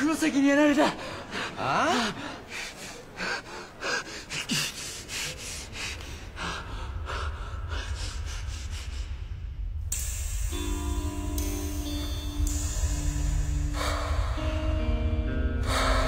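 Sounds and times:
man breathing hard: 1.0s - 9.9s, 13.3s - 16.0s
low rumble: 6.1s - 16.0s.

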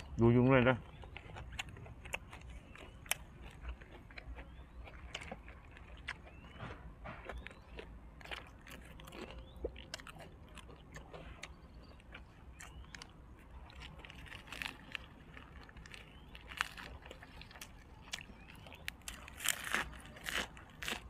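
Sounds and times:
chewing crunchy food: 0.0s - 21.0s.

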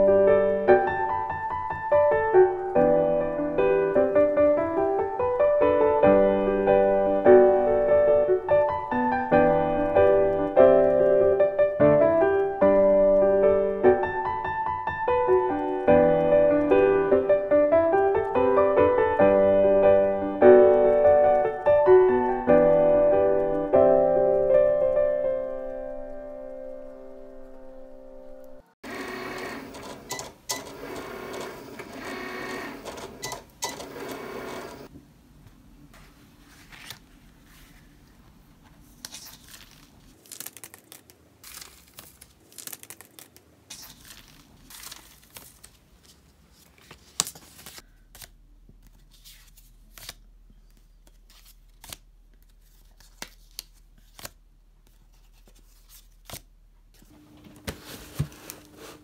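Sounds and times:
cutting machine motors whirring: 28.8s - 34.9s
paper rustling: 35.9s - 59.0s.

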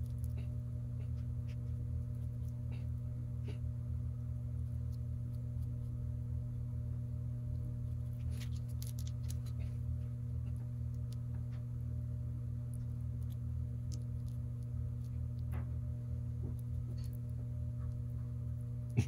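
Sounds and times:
steady low hum: 0.0s - 19.0s
greasy fingers clicking and smacking: 8.0s - 9.7s.

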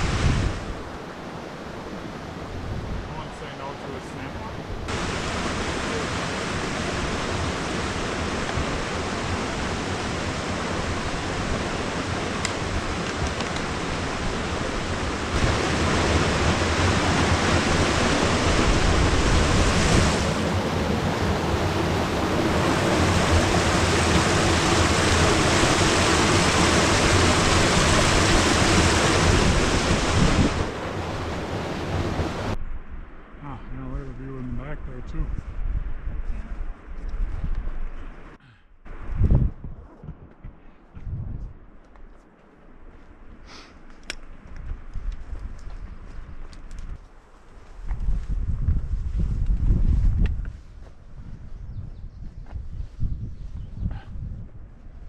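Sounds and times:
creek rushing over rocks: 3.1s - 32.6s.

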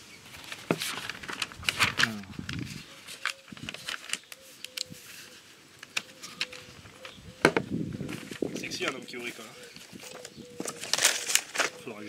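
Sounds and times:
paper pages rustling: 0.2s - 7.2s, 8.0s - 12.0s
brief vocal sound: 2.0s - 2.5s.

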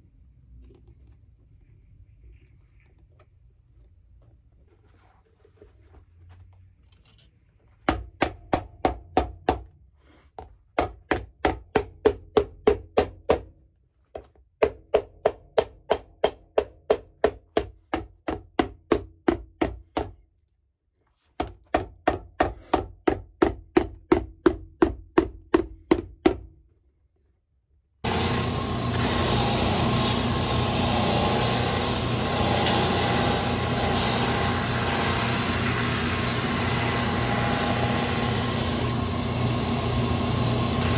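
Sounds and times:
sanding and buffing wheels whirring: 28.0s - 40.9s.

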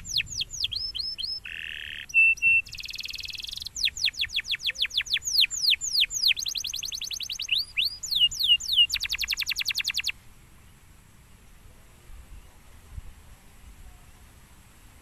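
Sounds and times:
canary singing: 0.0s - 10.2s.

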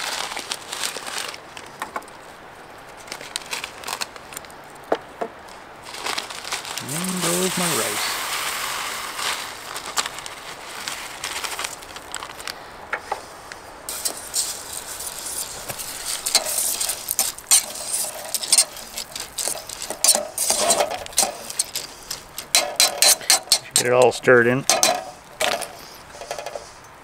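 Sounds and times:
utensil scraping metal pot: 13.9s - 26.8s.

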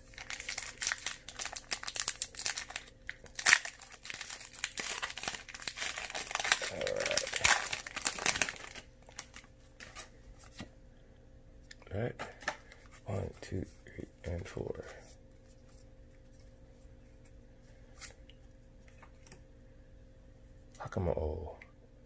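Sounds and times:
foil wrapper crinkling and tearing: 0.0s - 10.6s.

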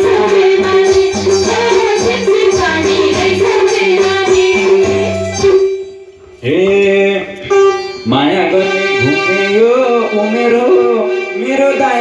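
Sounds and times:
hand drums: 0.0s - 5.8s
keyboard: 0.0s - 12.0s.

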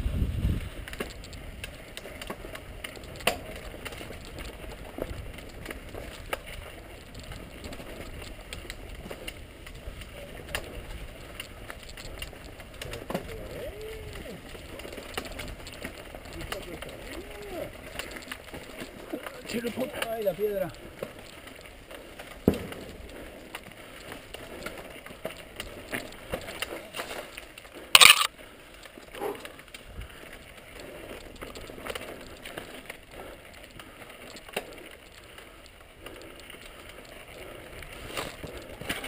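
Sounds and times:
bike rattling and clicking: 0.0s - 39.0s
tyres crunching over stones: 0.4s - 39.0s.

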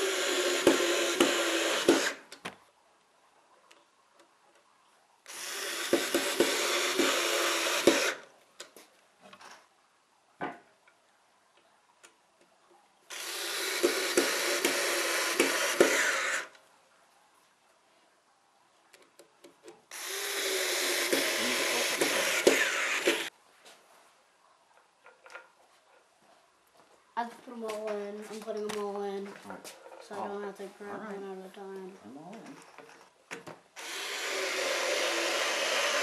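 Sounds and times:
electric screwdriver driving screws: 0.0s - 2.3s, 5.3s - 8.2s, 13.1s - 16.5s, 19.9s - 23.3s, 33.8s - 36.0s.

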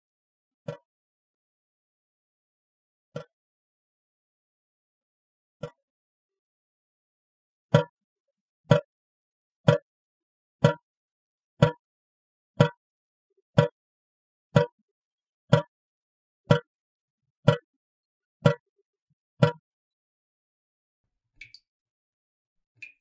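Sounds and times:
faucet dripping: 21.4s - 21.7s, 22.8s - 23.0s.

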